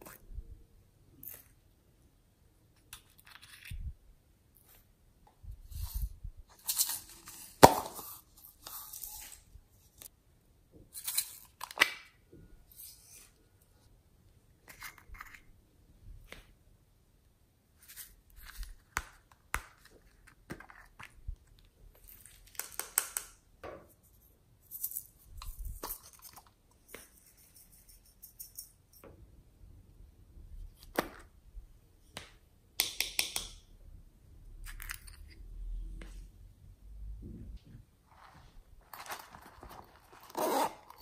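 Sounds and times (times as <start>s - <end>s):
contents rattling: 38.1s - 41.0s.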